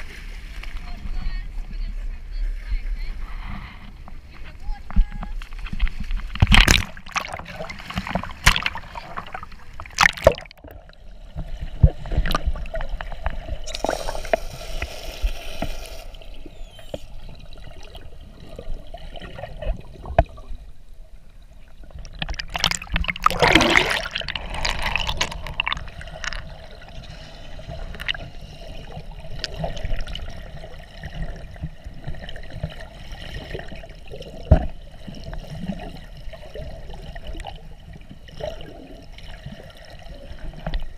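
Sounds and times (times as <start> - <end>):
water splashing and gurgling: 4.2 - 40.9
bubbles underwater: 21.8 - 37.6.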